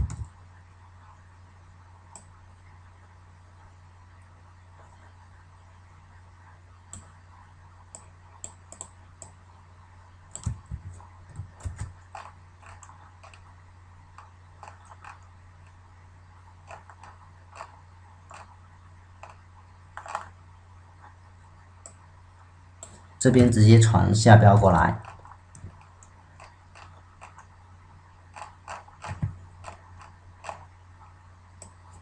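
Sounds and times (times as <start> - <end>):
low electrical hum: 0.0 - 32.0
mouse clicks: 6.9 - 7.2, 7.9 - 9.4, 31.6 - 32.0
computer keyboard typing: 10.3 - 13.5, 14.2 - 15.2, 16.6 - 18.5, 20.0 - 20.3, 24.9 - 27.5, 28.3 - 30.7.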